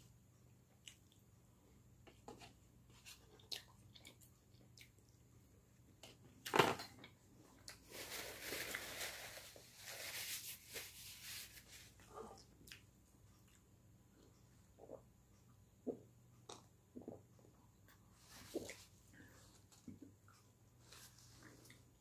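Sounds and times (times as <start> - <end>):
paper towel rustling: 7.8 - 12.0.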